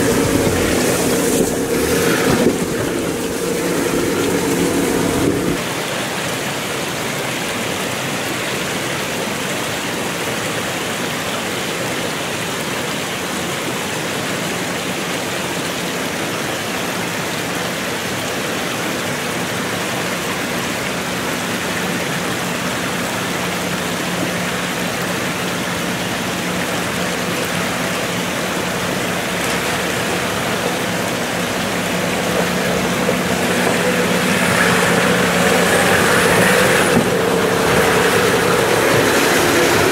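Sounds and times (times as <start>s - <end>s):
suv engine crawling: 0.0s - 5.8s, 16.9s - 39.9s
water rushing in a rocky stream: 0.0s - 39.9s.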